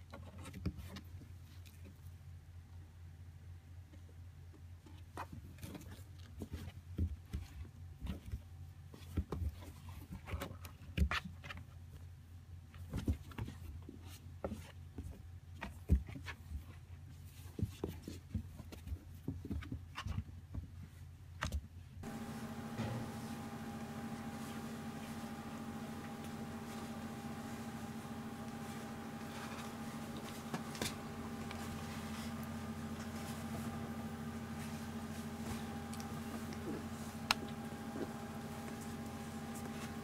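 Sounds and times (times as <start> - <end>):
low hum: 22.0 - 40.0.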